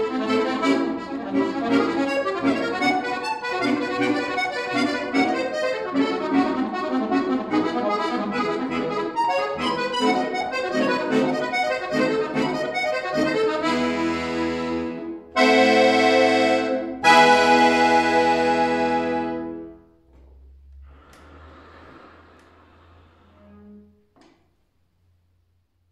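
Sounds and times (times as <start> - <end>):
accordion playing: 0.0 - 20.0.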